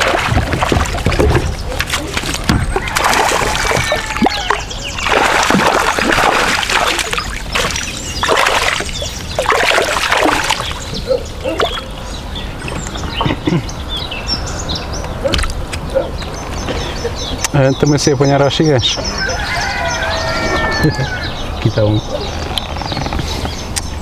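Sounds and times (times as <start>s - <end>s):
fish thrashing and splashing: 0.0s - 12.0s.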